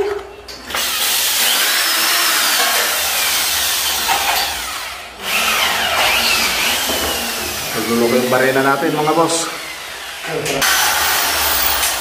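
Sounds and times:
electric drill grinding into steel: 0.7 - 12.0.

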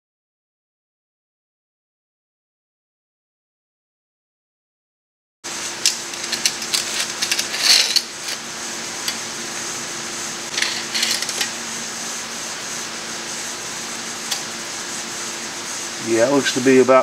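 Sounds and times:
steady low hum: 5.5 - 17.0
metal clicks and rubbing: 5.9 - 8.4, 10.5 - 11.5
metal scrape: 6.0 - 8.5, 10.5 - 11.6.

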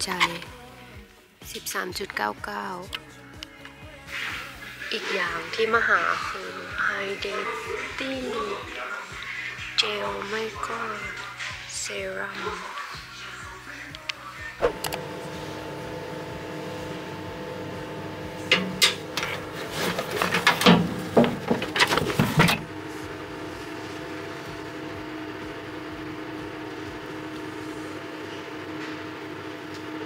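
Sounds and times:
steady mechanical hum: 13.8 - 30.0
clothing rustle: 19.2 - 22.6.

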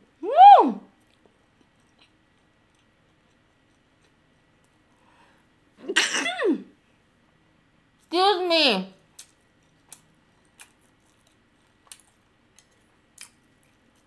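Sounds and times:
woman sneezing: 5.8 - 6.7.

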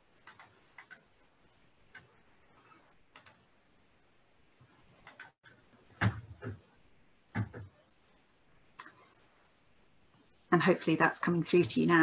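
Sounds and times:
mouse and keyboard clicks: 0.2 - 1.1, 3.1 - 3.4, 5.0 - 5.4.

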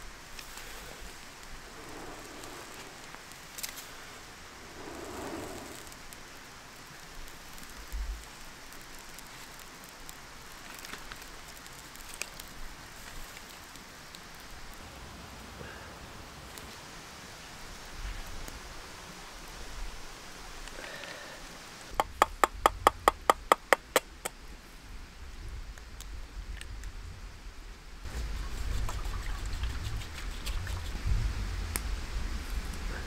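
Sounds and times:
small crackles and pops: 0.0 - 14.8, 25.3 - 27.2, 28.1 - 32.8
steady hiss: 0.0 - 33.0
person blowing on tinder: 4.6 - 6.1.

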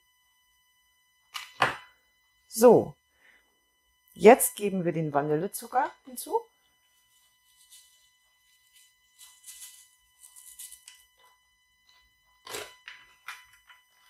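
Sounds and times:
paper sachet rustling: 7.1 - 11.0.

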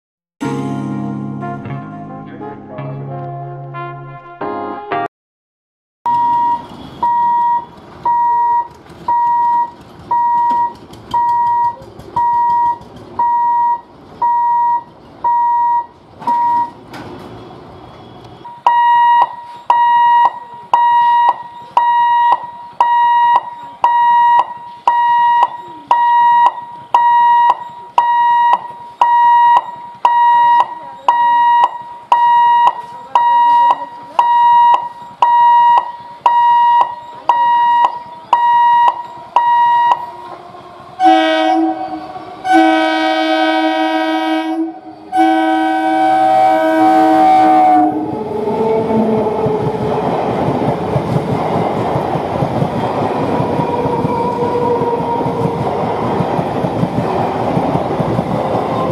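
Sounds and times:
level crossing warning beeps: 6.1 - 16.8, 18.5 - 40.3.

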